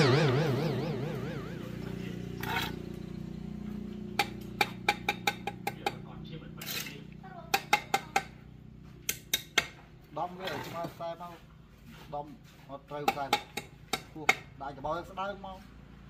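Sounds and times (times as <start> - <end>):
trowel scrape: 2.4 - 2.8, 6.6 - 7.0, 10.3 - 11.0.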